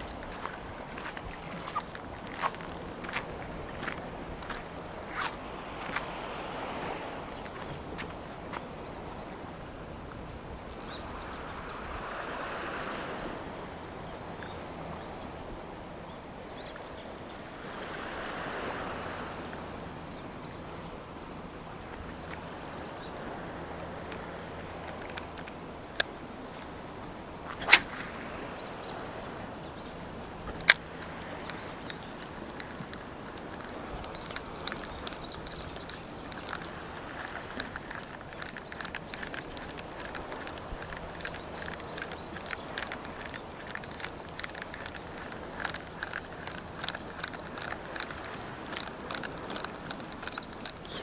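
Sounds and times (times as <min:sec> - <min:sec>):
insects chirring: 0:00.0 - 0:51.0
small waves washing in: 0:00.0 - 0:51.0
sharp clicks: 0:30.5 - 0:51.0.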